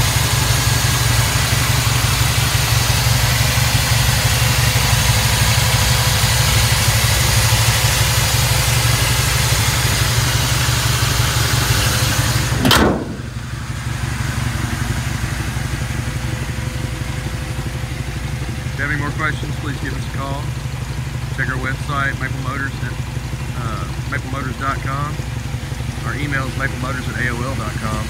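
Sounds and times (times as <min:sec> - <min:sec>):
engine idling: 0:00.0 - 0:28.0
hood slamming shut: 0:12.0 - 0:13.6.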